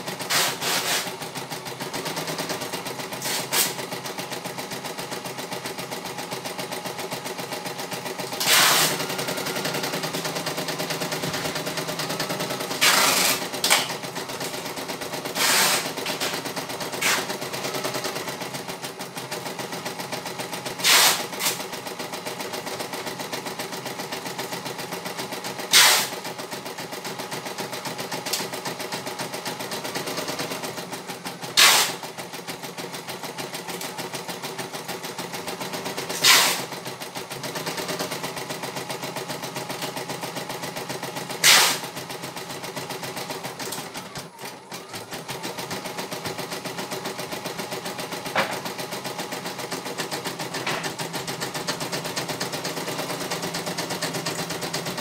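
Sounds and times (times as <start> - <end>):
embroidery machine stitching: 0.0 - 55.0.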